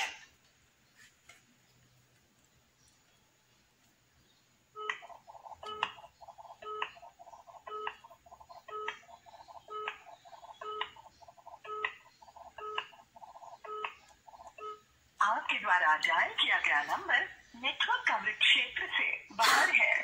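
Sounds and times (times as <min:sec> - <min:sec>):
phone ringing tone: 0:04.8 - 0:14.9.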